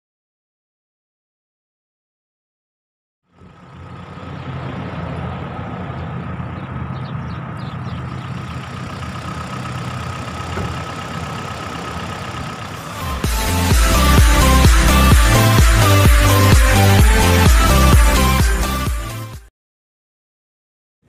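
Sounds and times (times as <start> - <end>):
quad bike engine idling: 3.3 - 16.4.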